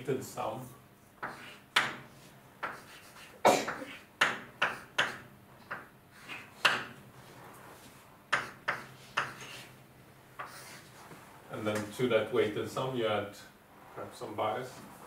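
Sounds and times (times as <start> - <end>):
writing taps on board: 2.6 - 2.9, 4.2 - 6.9, 8.3 - 9.4.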